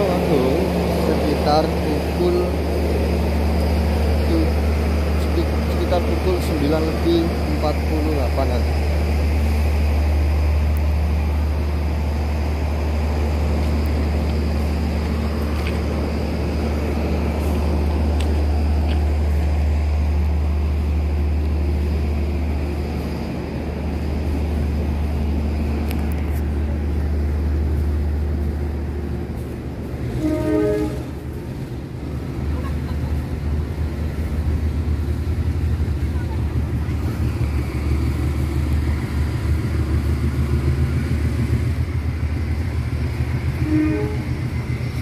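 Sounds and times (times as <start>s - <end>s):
diesel locomotive idling hum: 0.0s - 45.0s
short train horn toot: 30.1s - 31.2s, 43.5s - 44.6s.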